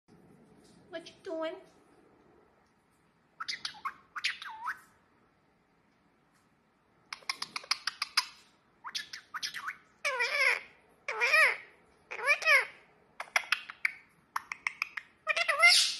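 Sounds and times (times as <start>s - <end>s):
parakeet chirping and chattering: 3.4s - 4.9s, 7.1s - 15.9s.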